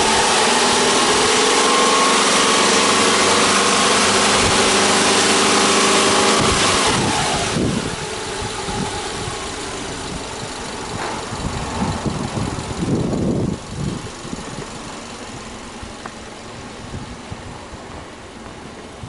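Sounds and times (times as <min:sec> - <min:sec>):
car engine idling: 0:00.0 - 0:19.0
low rumbles on microphone: 0:06.4 - 0:19.0.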